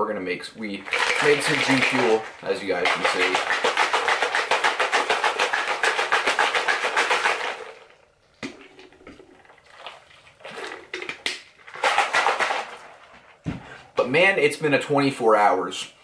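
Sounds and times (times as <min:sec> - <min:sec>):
shaker bottle rattling: 0:00.7 - 0:07.9, 0:11.7 - 0:13.1.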